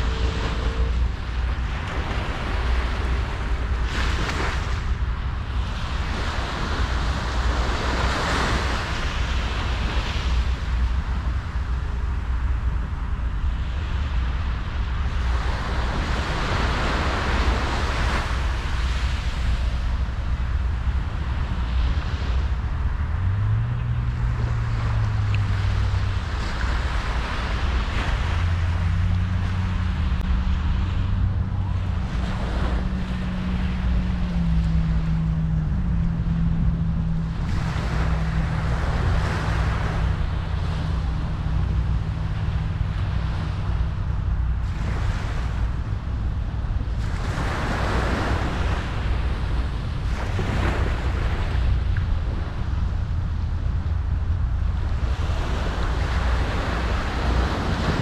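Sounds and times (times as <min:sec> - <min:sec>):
low hum changing pitch: 0:00.0 - 0:04.9, 0:28.4 - 0:44.3
ocean waves breaking on shore: 0:00.0 - 0:58.0
wind rumble on microphone: 0:00.0 - 0:58.0.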